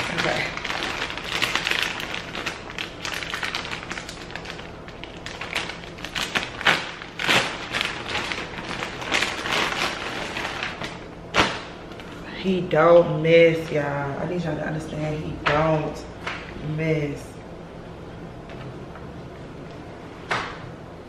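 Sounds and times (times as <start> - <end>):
plastic packaging crinkling: 0.0 - 12.2.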